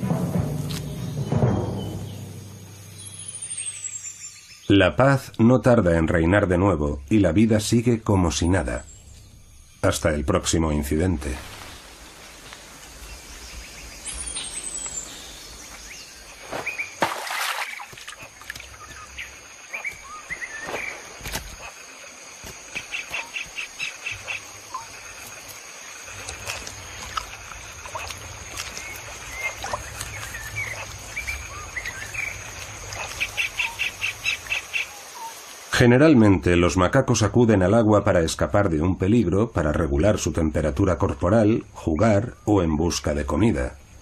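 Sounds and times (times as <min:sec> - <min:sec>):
birds chirping and calling: 0:00.1 - 0:05.0, 0:11.9 - 0:35.4.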